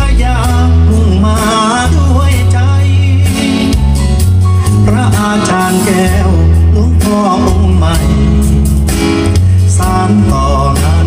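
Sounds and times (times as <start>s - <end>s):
heavy bass line: 0.0s - 11.0s
song with male singing: 0.0s - 11.0s.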